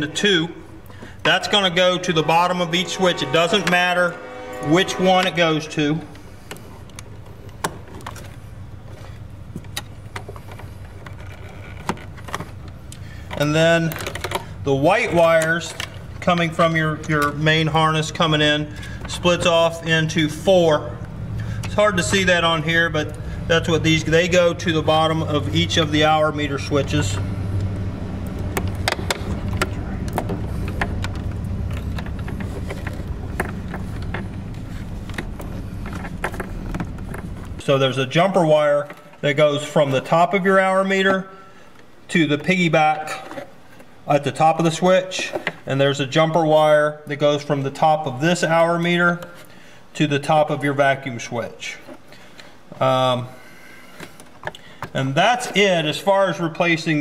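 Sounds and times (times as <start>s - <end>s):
low steady hum: 0.0s - 57.0s
wire connectors clicking and rattling: 6.1s - 19.8s, 21.0s - 37.7s.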